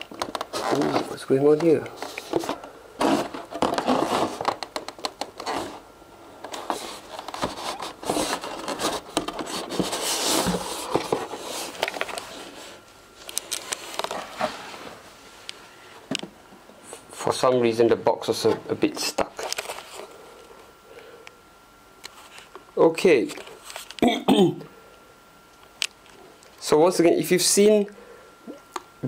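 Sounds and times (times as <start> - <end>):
cardboard scraping and rubbing: 0.4 - 1.2, 2.1 - 5.8, 6.5 - 12.8, 13.9 - 15.1.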